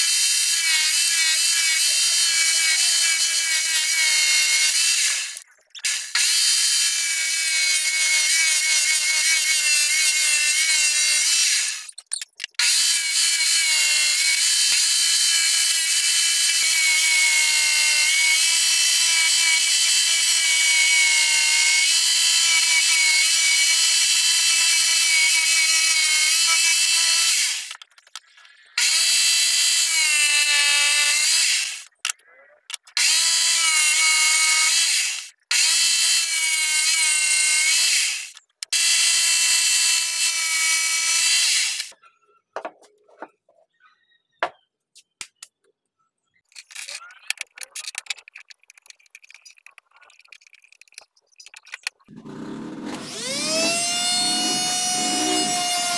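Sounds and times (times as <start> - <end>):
electric power tool motor whining: 52.1 - 55.9.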